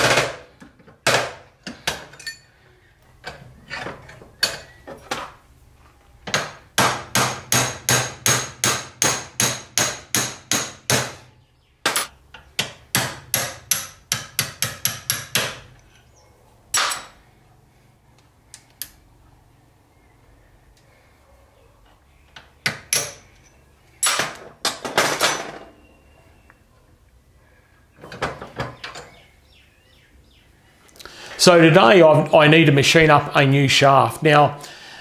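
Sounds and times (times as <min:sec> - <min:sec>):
hammer tapping on metal: 0:06.3 - 0:11.2, 0:11.9 - 0:15.7.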